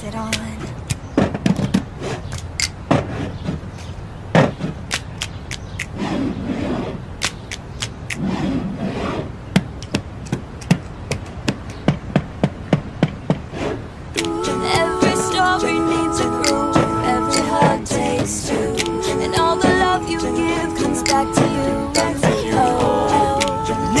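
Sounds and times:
soft rushes of noise: 5.8s - 7.2s, 8.1s - 9.5s, 13.4s - 14.3s.

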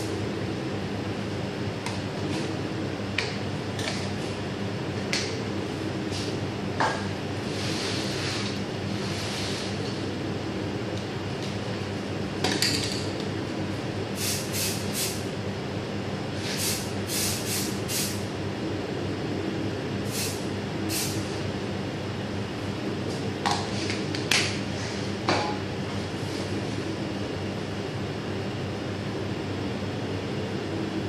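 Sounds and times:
electrical hum of machinery: 0.0s - 31.0s
hissing spray bursts: 14.2s - 15.2s, 16.5s - 18.2s, 20.1s - 21.2s.

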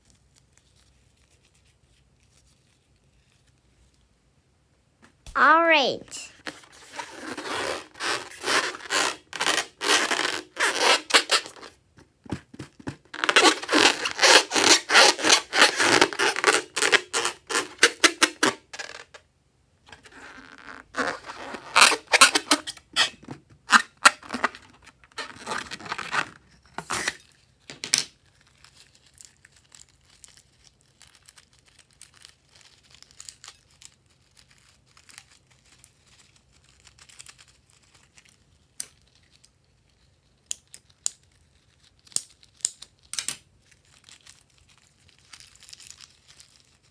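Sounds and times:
hands rubbing rubber balloon: 6.4s - 18.6s.

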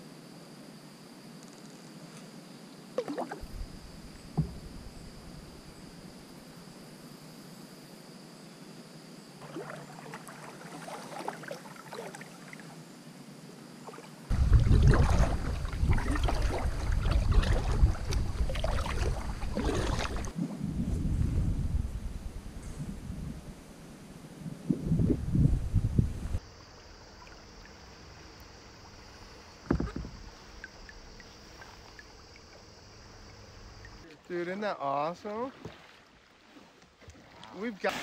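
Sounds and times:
paddle splashing in water: 3.0s - 5.7s, 9.4s - 12.7s, 13.8s - 20.6s, 26.5s - 34.0s, 35.2s - 38.0s
wind rumble on microphone: 3.4s - 6.0s, 14.3s - 26.4s
sharp knocks: 4.3s - 4.8s, 29.6s - 30.2s.

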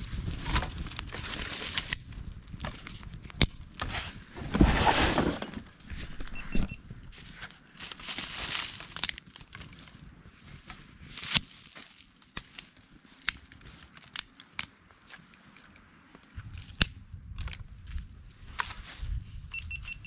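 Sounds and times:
dry twigs rustling: 0.0s - 20.0s
fire crackling and popping: 12.1s - 15.7s.

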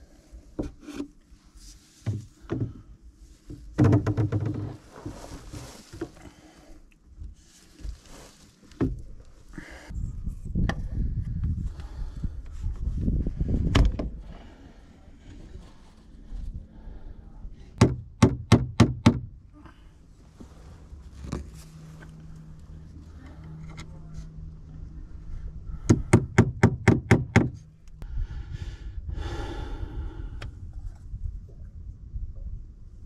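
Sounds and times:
hammer knocking on wood: 17.8s - 19.2s, 25.9s - 27.6s.

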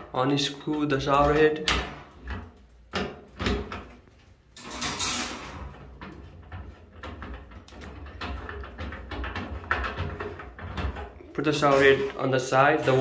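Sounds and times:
metal scraping: 4.6s - 7.4s, 8.0s - 13.0s
shower head clicking and rattling: 4.6s - 11.1s.

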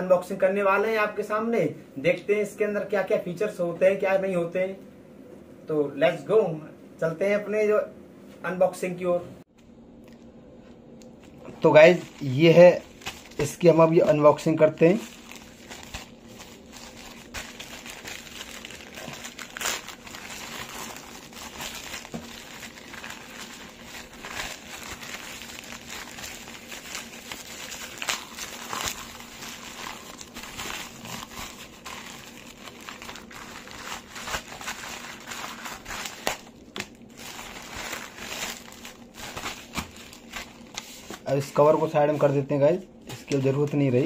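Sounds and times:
plastic bag and bubble wrap crinkling: 11.1s - 42.3s.

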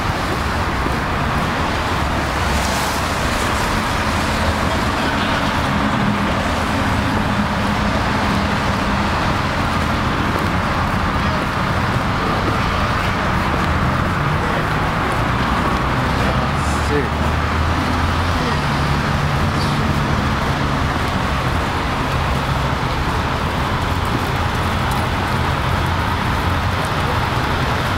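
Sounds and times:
city street traffic: 0.0s - 27.9s.

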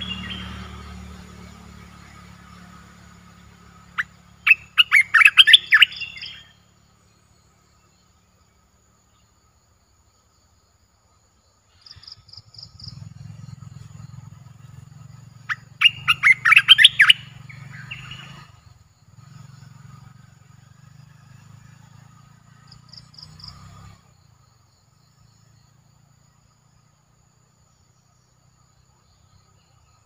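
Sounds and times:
bulbul singing: 0.0s - 8.2s, 11.8s - 20.1s.

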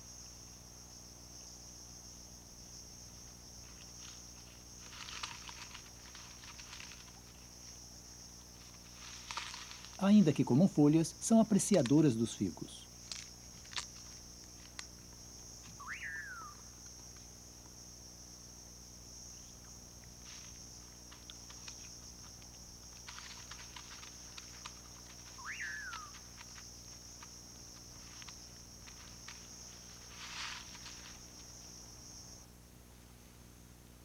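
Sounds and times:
insect trill: 0.0s - 34.0s
rustles in dry leaf litter: 3.6s - 16.5s, 19.5s - 32.4s
rising and falling calls: 15.7s - 16.8s, 25.0s - 26.4s.

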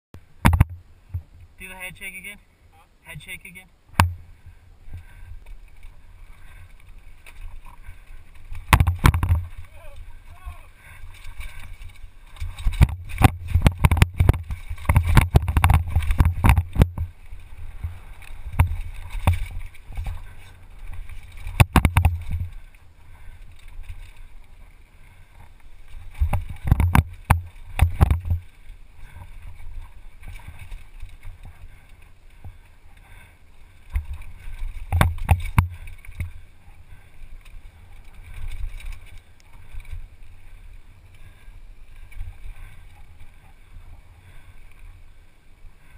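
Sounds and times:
bike rattling and knocking on rocks: 0.4s - 1.3s, 5.6s - 10.3s, 10.9s - 40.1s
low wind rumble on microphone: 11.0s - 32.6s.

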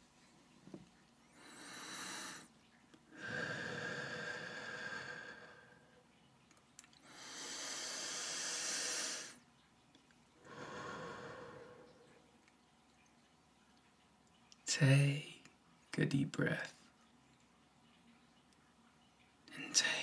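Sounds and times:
slow deep breaths: 1.3s - 2.5s, 3.1s - 6.0s, 7.0s - 9.4s, 10.4s - 12.3s.

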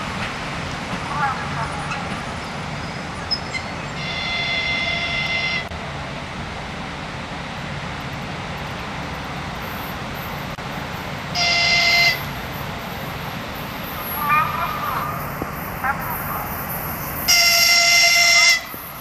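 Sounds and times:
locomotive horn blasts: 4.0s - 5.7s, 11.3s - 12.3s, 17.3s - 19.0s.

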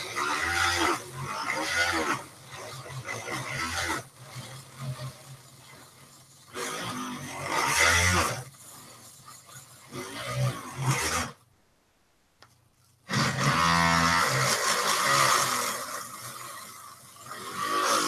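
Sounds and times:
rotary tool sanding cork: 0.0s - 11.5s, 12.5s - 18.0s.

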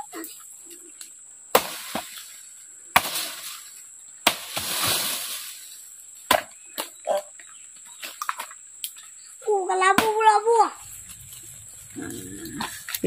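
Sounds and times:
leaves and branches rustling: 0.0s - 13.0s
machete chopping tree trunk: 1.5s - 2.3s, 2.9s - 3.6s, 4.2s - 5.5s, 6.3s - 7.0s, 9.9s - 10.3s.

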